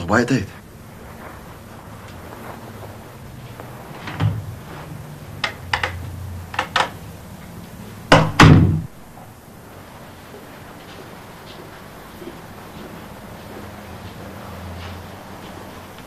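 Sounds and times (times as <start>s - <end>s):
heavy door thuds: 4.0s - 4.6s, 8.1s - 8.9s
knocking on door: 8.1s - 8.9s.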